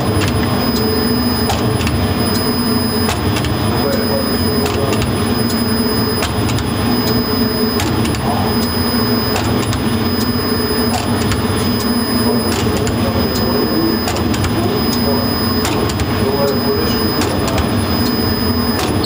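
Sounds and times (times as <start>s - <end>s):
thin high whine: 0.5s - 19.0s
machine rumble and rattle: 4.4s - 13.4s, 14.0s - 19.0s.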